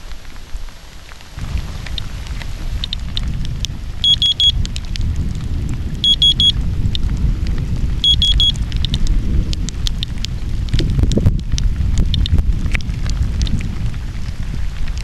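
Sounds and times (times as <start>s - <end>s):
rain falling: 0.0s - 15.0s
steady low rumble: 0.8s - 15.0s
quick high alert beeps: 4.0s - 4.6s, 6.0s - 6.6s, 8.0s - 8.6s
geiger counter clicking: 4.0s - 4.8s, 6.0s - 7.0s, 8.0s - 10.3s, 12.0s - 12.8s.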